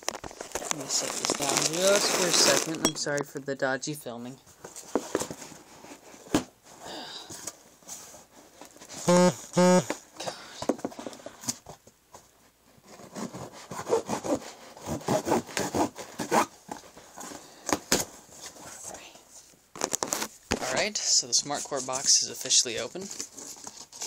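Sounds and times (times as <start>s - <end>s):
scratchy handling noises: 0.0s - 3.0s
cardboard box scraping and rasping: 0.6s - 2.8s, 12.9s - 17.5s
loud pitched cardboard rasps: 9.0s - 10.0s.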